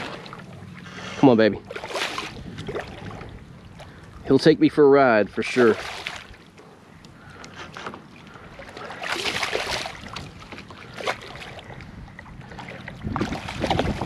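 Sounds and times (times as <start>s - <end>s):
fish splashing in water: 1.7s - 4.0s, 5.8s - 6.5s, 8.3s - 11.8s, 12.4s - 14.0s.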